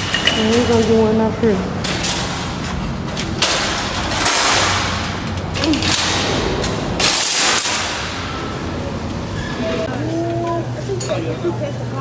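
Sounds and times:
shopping cart rattling on concrete: 0.0 - 8.7.

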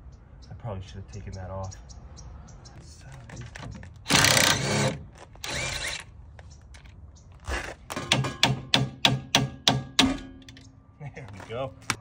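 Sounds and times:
cordless impact wrench bursts: 4.1 - 6.0.

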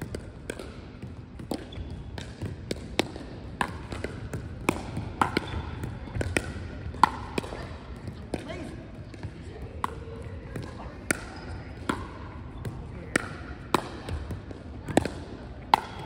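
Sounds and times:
paddles striking plastic ball: 0.0 - 8.5
ball bouncing on court: 0.0 - 16.0.

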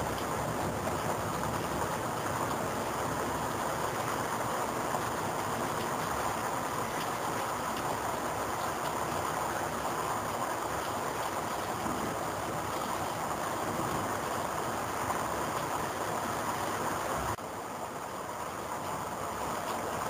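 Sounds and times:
rain falling steadily: 0.0 - 20.0.

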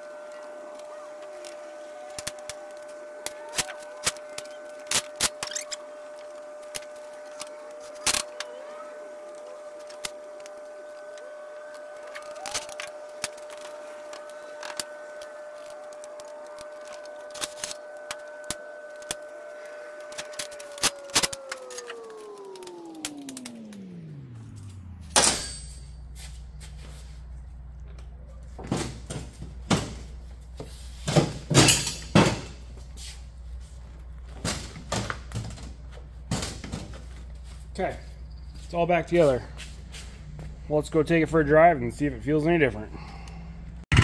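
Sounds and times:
machine motor whine: 0.0 - 44.0
hand tools clanking on metal: 31.5 - 32.5.

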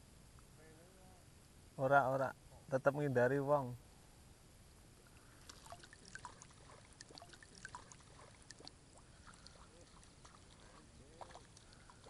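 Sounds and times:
water trickling and dripping: 5.0 - 12.0.

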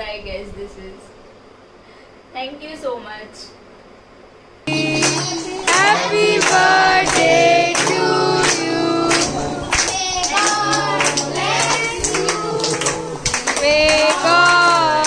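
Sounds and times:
several voices singing: 4.7 - 15.0.

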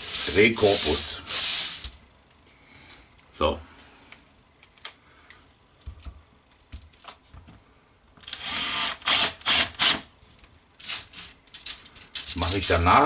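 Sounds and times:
power screwdriver driving screw: 8.2 - 10.1.

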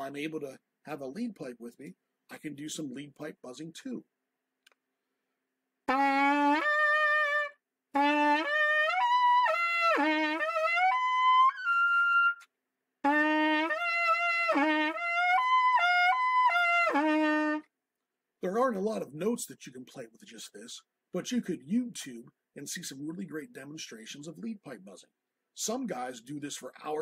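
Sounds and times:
trumpet mouthpiece buzzing notes: 5.9 - 12.4, 13.0 - 17.6.

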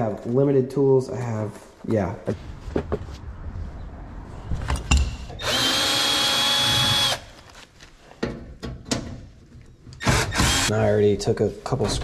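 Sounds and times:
cordless drill whine: 5.4 - 7.3.

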